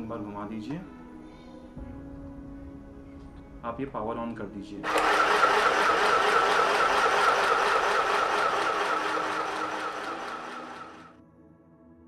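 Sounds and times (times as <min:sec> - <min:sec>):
sewing machine motor whirring: 0:04.8 - 0:11.1.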